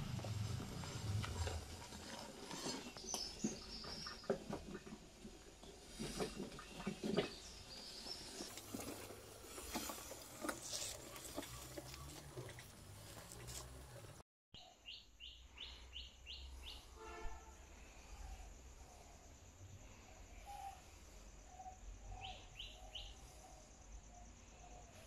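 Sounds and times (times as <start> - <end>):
tyres rolling over dry leaves: 0.0 - 14.2
footsteps on dry leaves: 8.2 - 14.0
bird chirps: 14.6 - 17.3, 20.4 - 24.8.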